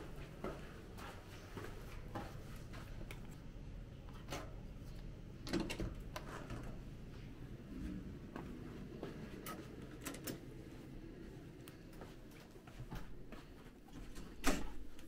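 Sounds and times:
footsteps on carpet: 0.0s - 3.0s, 10.7s - 14.2s.

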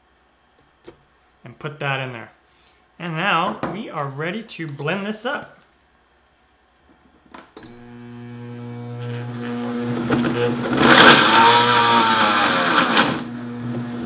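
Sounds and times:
blender grinding frozen fruit: 7.8s - 14.0s.

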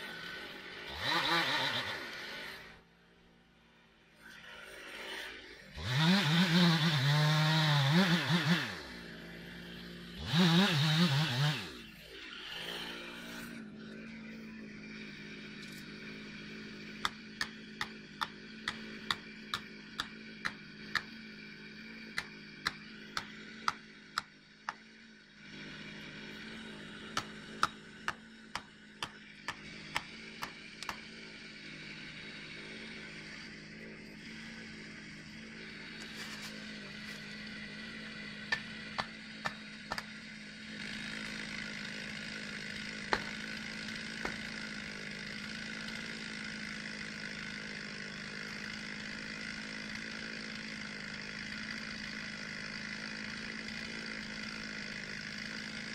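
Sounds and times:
chainsaw revving and idling: 0.0s - 55.9s
axe hammering a wedge: 17.0s - 21.1s, 22.2s - 24.8s, 27.1s - 31.0s, 38.5s - 40.1s, 43.1s - 43.4s.

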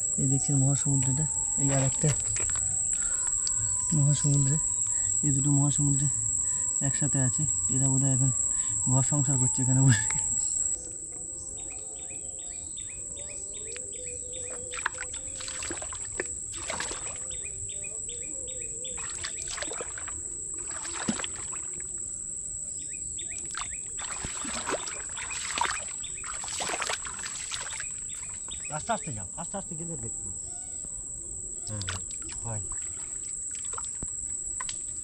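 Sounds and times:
insect droning: 0.0s - 35.0s
squelches and splashes in mud: 14.7s - 17.2s, 19.0s - 21.7s, 23.5s - 28.0s.

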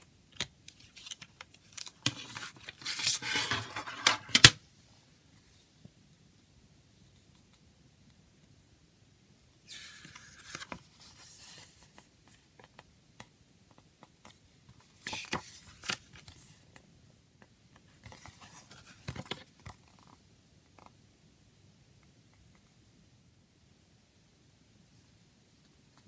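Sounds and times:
paper booklet pages rustling: 0.4s - 4.5s, 9.7s - 12.8s, 14.2s - 16.6s, 18.0s - 20.2s.

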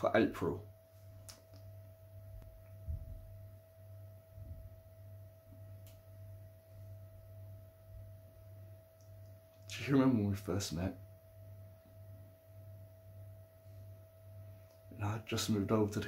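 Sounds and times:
faint steady whine: 0.0s - 16.0s
low hum: 0.0s - 16.0s
soft low thump: 2.4s - 3.4s.

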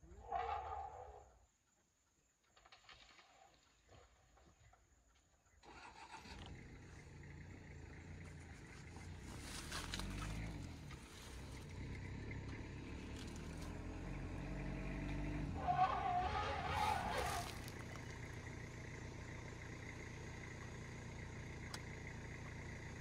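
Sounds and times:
vehicle engine approaching: 6.0s - 23.0s.

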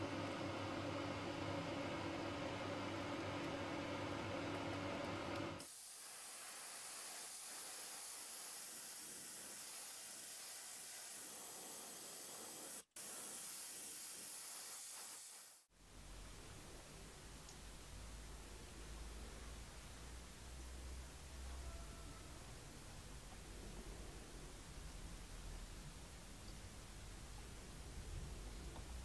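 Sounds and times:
mechanical hum: 0.0s - 9.7s, 15.4s - 29.0s
paint spraying hiss: 5.6s - 15.7s.

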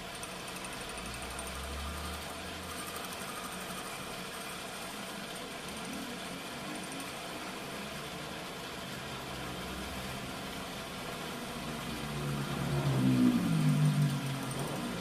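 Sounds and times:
metal lathe running: 0.0s - 15.0s.

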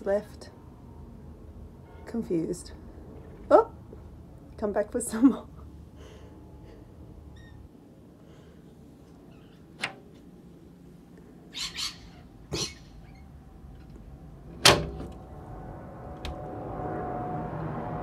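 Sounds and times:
low background hum: 0.0s - 18.0s
parrots screeching: 11.5s - 13.3s.

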